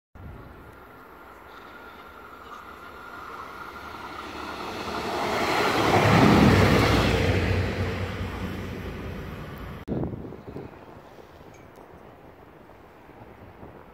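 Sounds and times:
train passing: 0:00.2 - 0:09.8
rumble of train wheels: 0:00.2 - 0:09.9.

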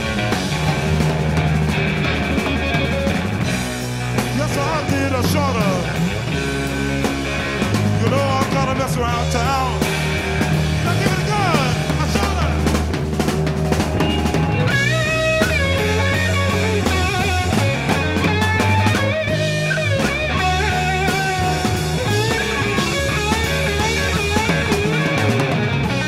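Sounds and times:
electric guitar solo: 0:00.0 - 0:08.0, 0:09.0 - 0:26.0
bass guitar: 0:00.0 - 0:26.0
drums: 0:00.0 - 0:26.0.

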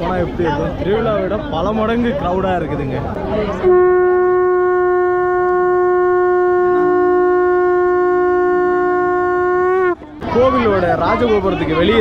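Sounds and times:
lower held wind note: 0:03.6 - 0:10.2
wind instrument holding a note: 0:03.6 - 0:10.2.

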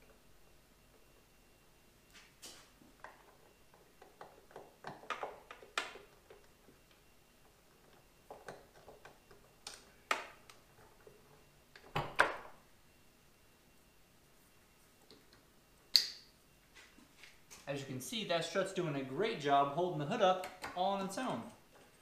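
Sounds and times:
sharp snaps: 0:15.9 - 0:16.3.

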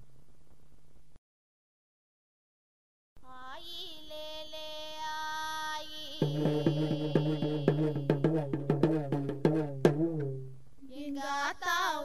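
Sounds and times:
woman singing long note: 0:03.2 - 0:08.4
drums with quick steady beat: 0:06.2 - 0:10.6.

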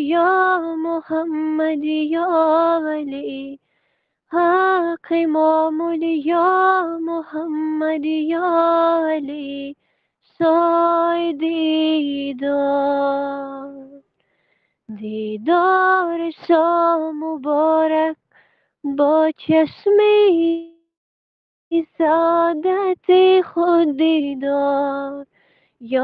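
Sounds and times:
person singing unaccompanied: 0:00.0 - 0:03.6, 0:04.3 - 0:09.8, 0:14.9 - 0:18.2, 0:21.7 - 0:25.2.

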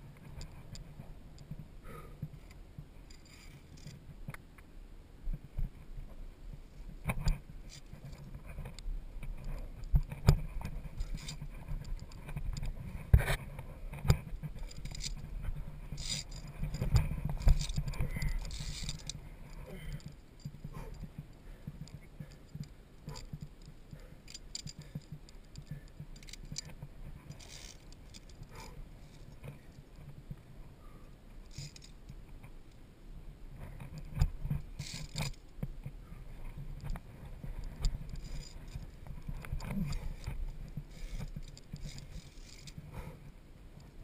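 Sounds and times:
steady low rumble: 0:00.0 - 0:44.0
carabiners clinking on cable: 0:02.4 - 0:04.0, 0:07.2 - 0:12.9, 0:13.9 - 0:30.2, 0:31.4 - 0:32.2, 0:33.8 - 0:35.6, 0:36.5 - 0:43.0.

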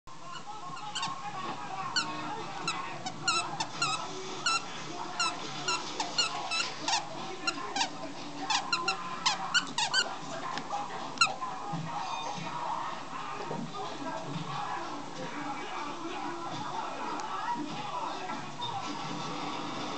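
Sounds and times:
squeak toy squeaking: 0:00.3 - 0:01.2, 0:02.0 - 0:10.1.

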